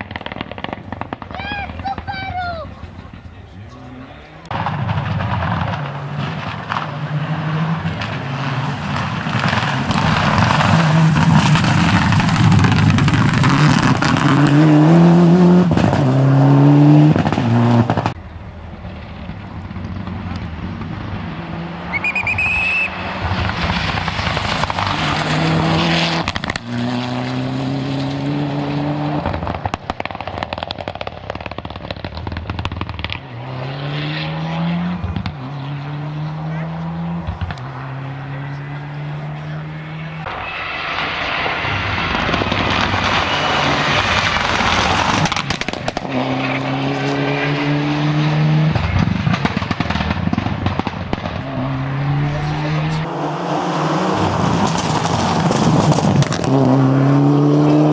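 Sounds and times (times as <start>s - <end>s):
rally car engine accelerating: 2.8s - 57.9s
tyres rushing on loose gravel: 4.4s - 14.6s, 18.1s - 26.9s, 40.2s - 46.7s, 54.2s - 56.5s.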